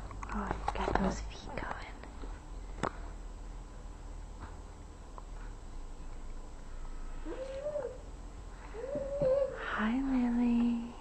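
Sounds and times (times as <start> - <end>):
baby cooing: 8.7 - 9.7.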